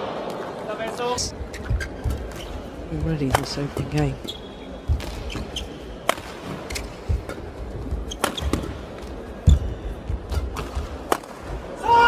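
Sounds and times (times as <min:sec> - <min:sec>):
shoes squeaking on court: 0:01.4 - 0:09.7.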